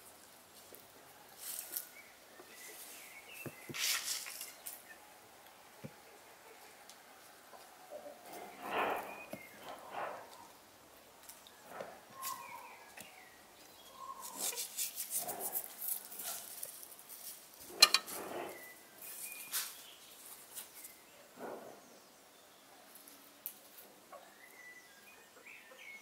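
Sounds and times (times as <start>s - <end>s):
salt sprinkling patter: 3.8s - 4.8s, 14.2s - 18.5s
faint bird chirps: 8.0s - 10.6s, 11.6s - 14.8s, 18.3s - 26.0s.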